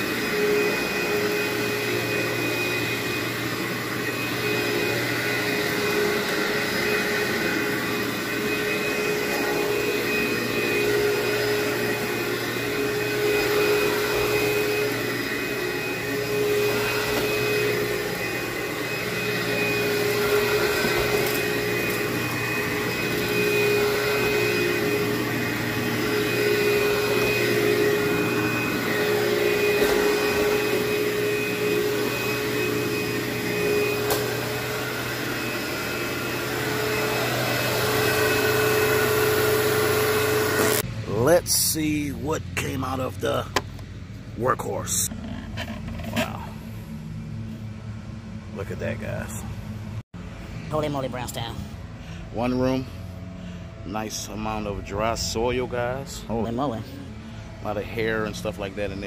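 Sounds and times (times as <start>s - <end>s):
vacuum cleaner on carpet: 0.0s - 59.0s.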